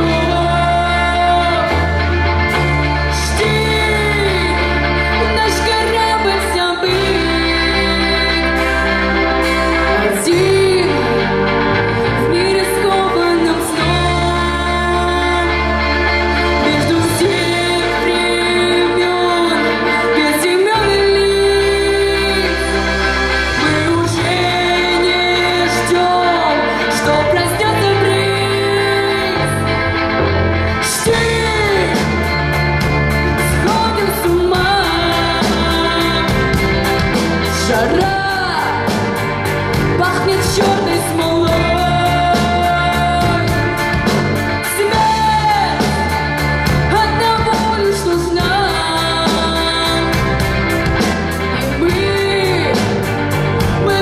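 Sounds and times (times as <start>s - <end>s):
live rock band playing: 0.0s - 54.0s
person singing lead vocal: 0.0s - 54.0s
drums beating: 30.2s - 54.0s.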